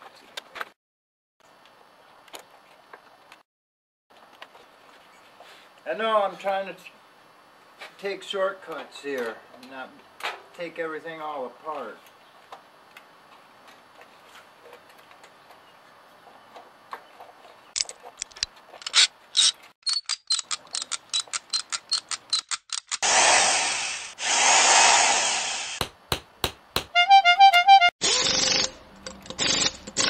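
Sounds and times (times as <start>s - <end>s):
ratchet rasping: 28.0s - 30.0s
ratchet wrench clicking: 28.1s - 30.0s.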